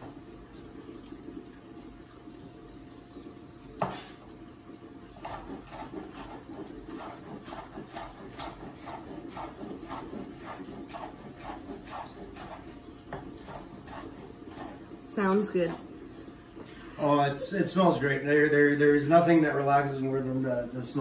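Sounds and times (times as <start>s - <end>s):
knife chopping on wooden board: 3.8s - 4.1s, 5.2s - 14.8s.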